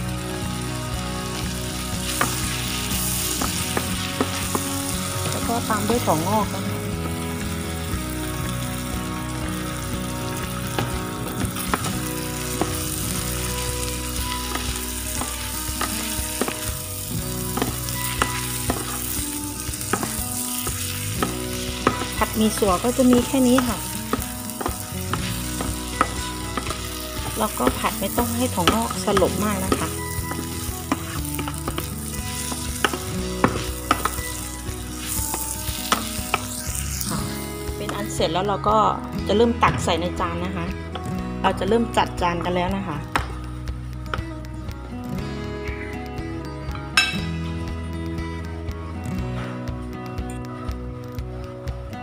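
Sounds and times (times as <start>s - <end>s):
food sizzling in a pan: 0.0s - 40.2s.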